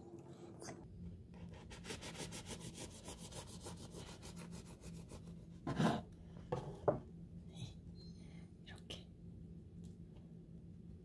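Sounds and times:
bread knife sawing bread: 1.5 - 6.0.

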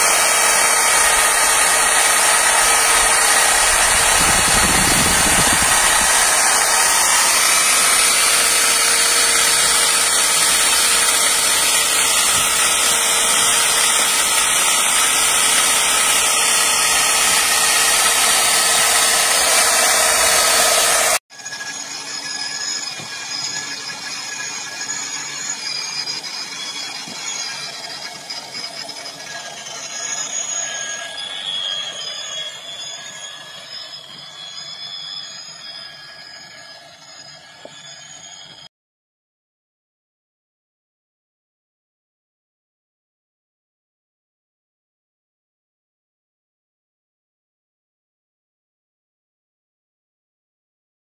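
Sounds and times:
plastic welder motor whine: 0.0 - 38.7.

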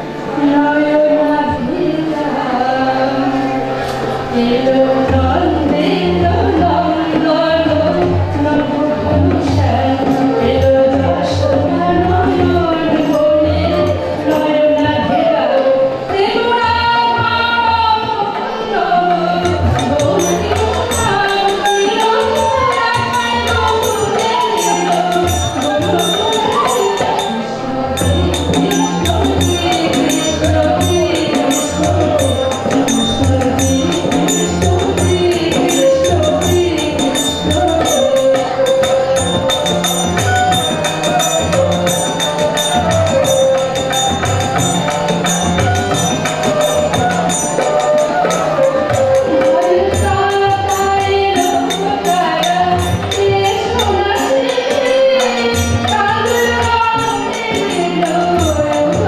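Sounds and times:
woman singing: 0.0 - 3.7, 4.3 - 59.0
harmonium: 0.0 - 59.0
jingling percussion: 19.0 - 59.0
hand drum beat: 19.2 - 27.4, 28.0 - 59.0.

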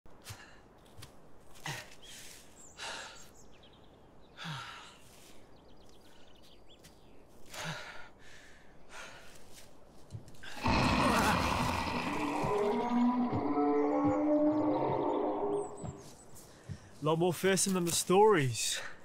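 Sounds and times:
man breathing hard: 2.8 - 3.3, 7.5 - 9.5.

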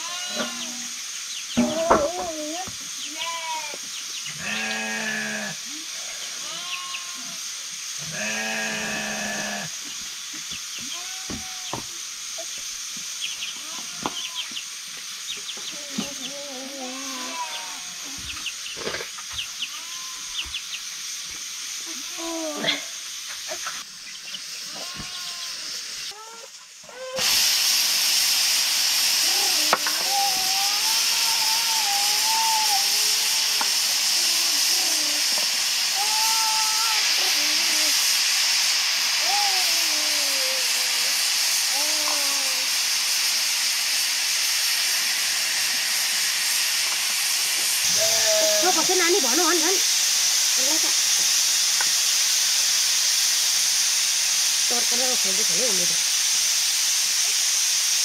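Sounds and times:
loud steady hiss: 0.0 - 58.0
sheep bleating: 4.4 - 5.5, 8.1 - 9.7.

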